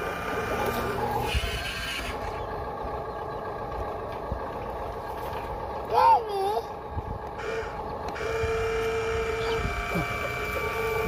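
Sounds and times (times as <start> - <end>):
toy truck electric motor running: 0.0 - 2.4, 7.4 - 11.0.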